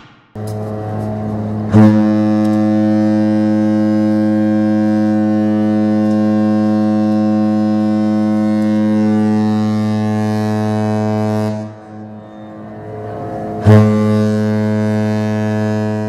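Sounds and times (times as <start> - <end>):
deep ship horn blast: 0.4 - 16.0.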